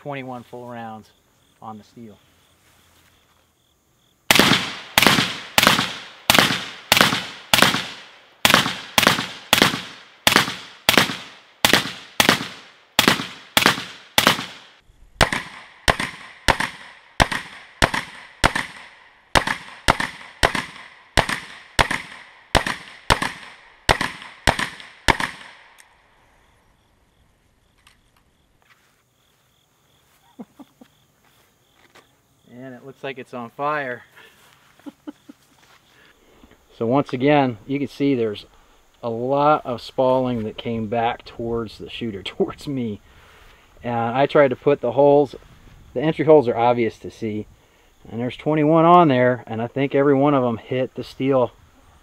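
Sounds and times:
rifle shots hitting steel plate: 4.3s - 25.8s.

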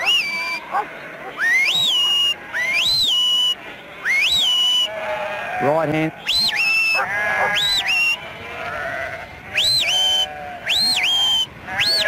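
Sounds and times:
sharp swooping whistles: 0.0s - 0.7s, 1.3s - 5.0s, 6.2s - 8.2s, 9.6s - 12.0s
sheep bleating: 0.0s - 12.0s.

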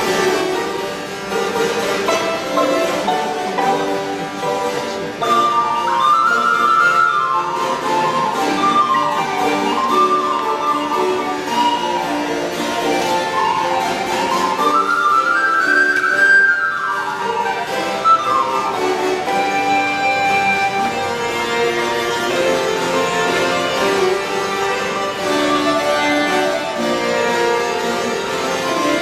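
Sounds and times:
harpsichord: 0.0s - 29.0s
violin: 0.0s - 29.0s
recorder playing quick runs: 5.0s - 21.7s.

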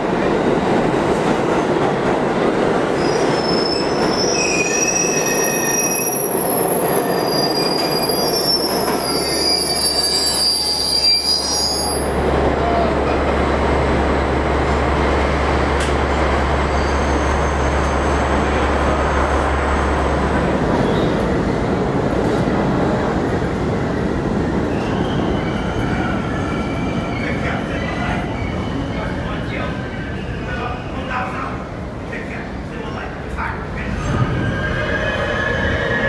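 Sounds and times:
subway trains rumbling: 0.0s - 36.0s
wheels squealing on rails: 2.9s - 12.9s, 16.6s - 19.4s, 24.7s - 31.0s, 34.0s - 36.0s.

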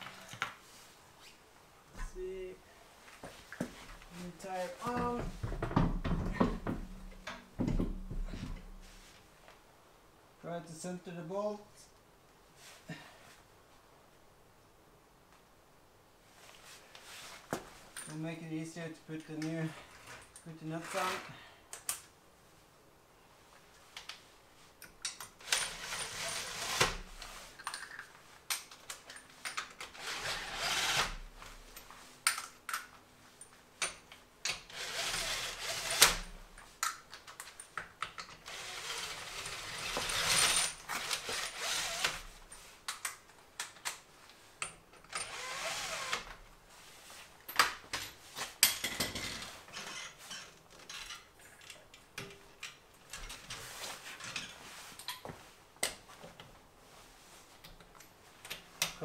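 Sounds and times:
drill spinning wheel nuts: 25.4s - 27.0s, 29.9s - 31.1s, 34.7s - 36.2s, 38.4s - 42.2s, 45.1s - 46.3s.

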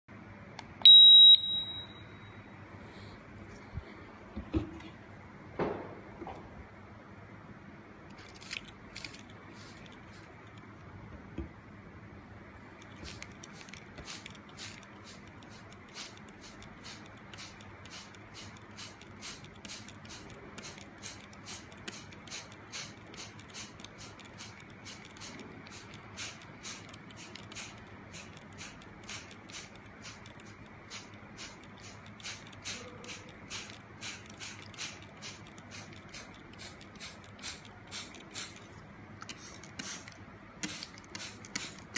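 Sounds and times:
spray bottle squirting: 8.1s - 10.6s, 12.6s - 41.9s.

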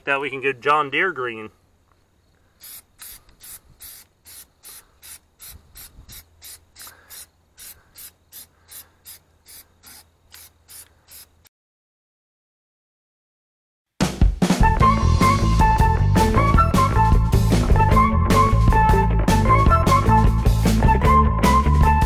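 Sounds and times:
aerosol can spraying: 2.6s - 11.5s.

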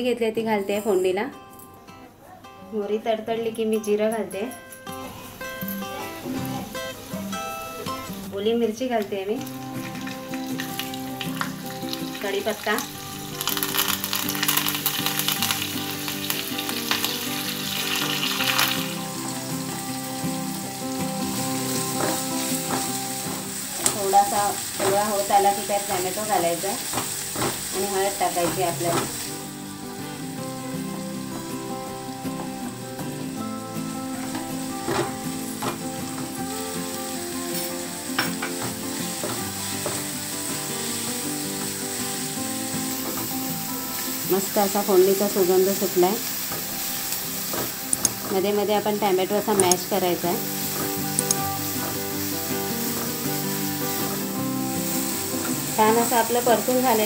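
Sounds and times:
onion sizzling in oil: 5.2s - 57.0s
spices crackling in hot oil: 5.3s - 57.0s
spatula scraping and tapping pan: 21.4s - 24.0s, 26.8s - 29.3s, 37.5s - 40.2s, 46.3s - 54.2s.

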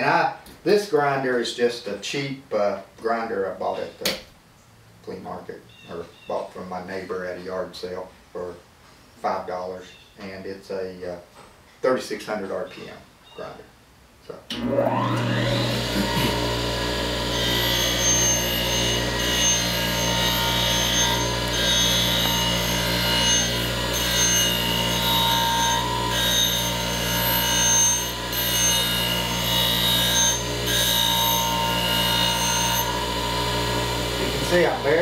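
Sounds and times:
bench grinder running: 14.6s - 35.0s
steel grinding rasp: 15.2s - 35.0s.

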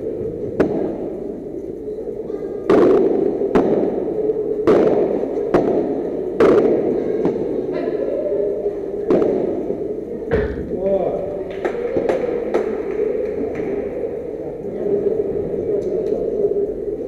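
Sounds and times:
rackets hitting ball: 0.4s - 1.1s, 2.7s - 7.5s, 9.0s - 10.7s, 11.4s - 14.4s.

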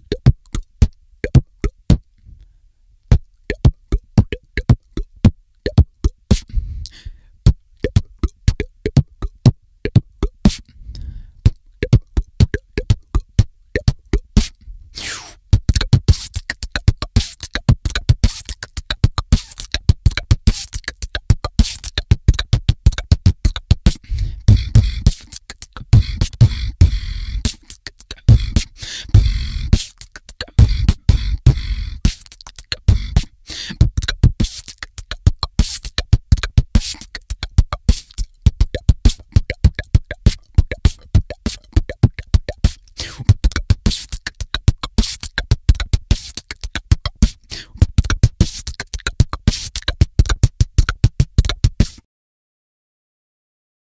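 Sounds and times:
boy beatboxing: 0.0s - 2.1s, 3.1s - 52.1s
deep bass sound: 24.2s - 25.1s, 25.9s - 27.5s, 28.3s - 29.8s, 30.6s - 32.0s.

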